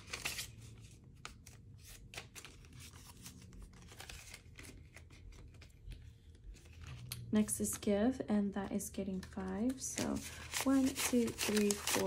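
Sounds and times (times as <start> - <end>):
banknotes rustling: 9.1 - 12.0.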